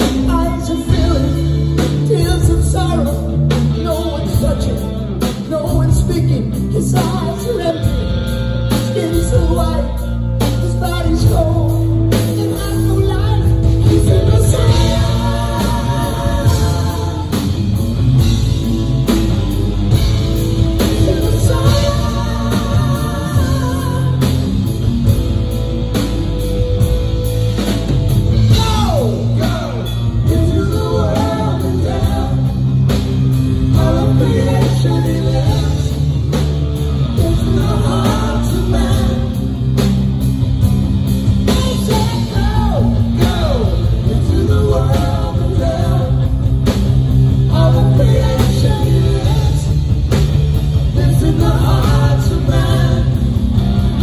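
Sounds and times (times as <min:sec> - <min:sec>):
man singing: 0:00.0 - 0:18.5, 0:20.6 - 0:25.2, 0:28.4 - 0:36.4, 0:37.0 - 0:39.9, 0:41.4 - 0:54.0
live heavy metal band: 0:00.0 - 0:54.0.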